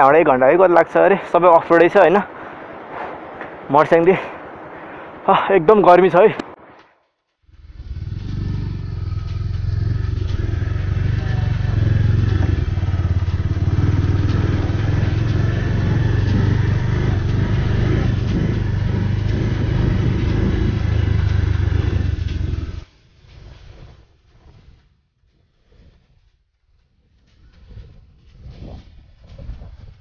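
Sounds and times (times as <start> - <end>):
motorcycle engine running: 7.4 - 22.9.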